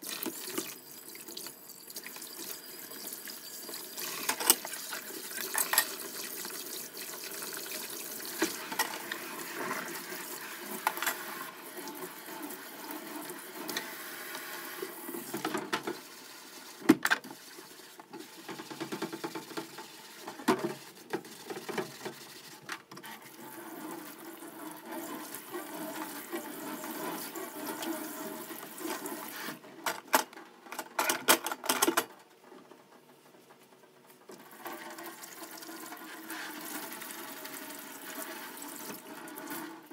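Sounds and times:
tap water running onto dishes: 0:00.0 - 0:22.2, 0:34.3 - 0:39.9.

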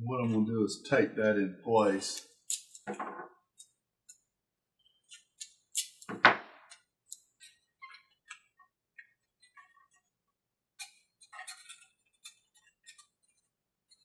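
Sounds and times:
faint clicks of wooden parts: 0:06.7 - 0:10.0.

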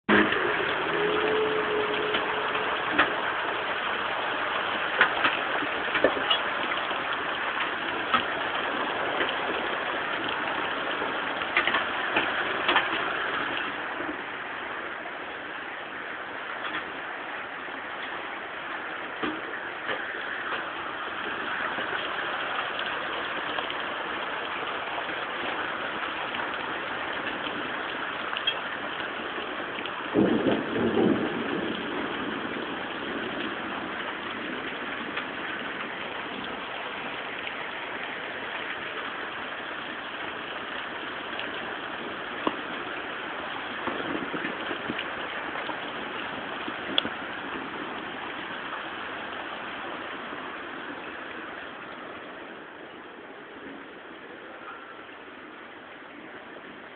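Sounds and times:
low rumble: 0:00.1 - 0:25.6
hailstones ticking: 0:00.1 - 0:55.2
hail and heavy rain hissing: 0:00.1 - 0:56.9.

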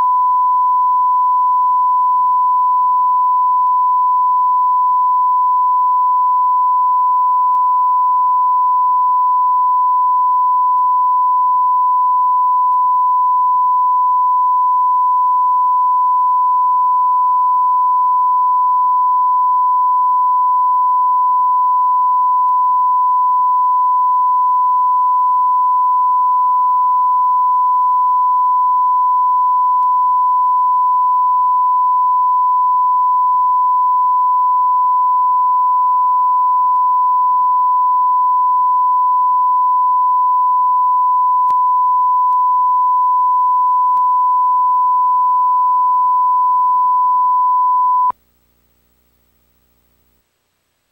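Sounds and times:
steady test tone: 0:27.0 - 0:48.1.

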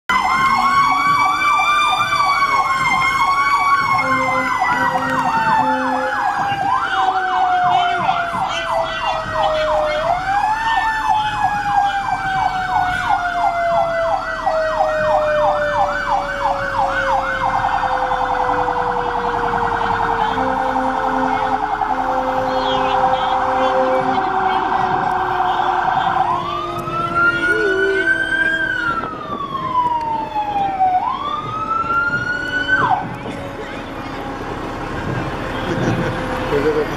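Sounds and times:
siren wail rising and falling: 0:00.0 - 0:36.9
electronic siren yelp: 0:00.1 - 0:35.9
short low horn blasts: 0:03.9 - 0:06.7, 0:18.5 - 0:28.9.

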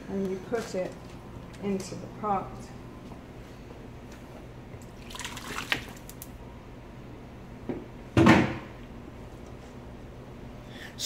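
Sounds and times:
onion splashing into water: 0:05.0 - 0:06.2.

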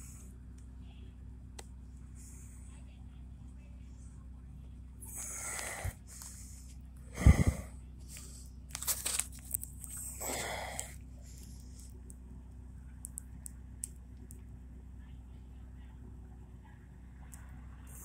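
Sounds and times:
low steady hum: 0:00.0 - 0:18.0
short crackles: 0:08.1 - 0:12.2
camera handling rustle: 0:08.7 - 0:10.0.

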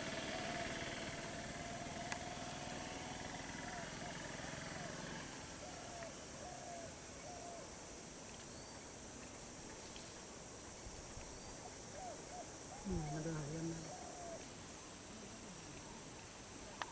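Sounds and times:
bird calling: 0:00.0 - 0:02.5, 0:03.4 - 0:07.7, 0:11.3 - 0:16.9
high insect drone: 0:00.0 - 0:16.9.

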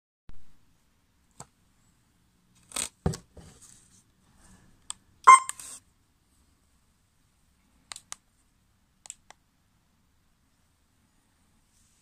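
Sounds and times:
remote control buttons clicking: 0:05.3 - 0:05.6.

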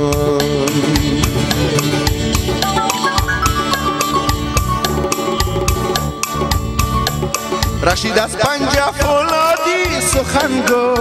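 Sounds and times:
folk melody: 0:01.6 - 0:07.2.

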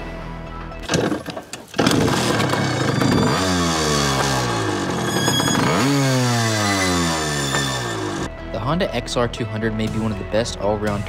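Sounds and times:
motorcycle engine revving: 0:00.8 - 0:08.3.

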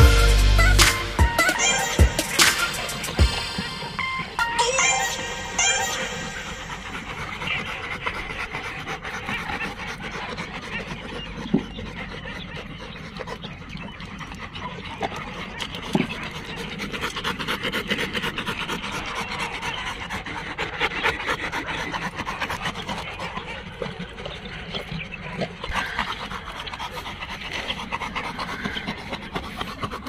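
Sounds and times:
dog panting rapidly: 0:00.0 - 0:30.0.

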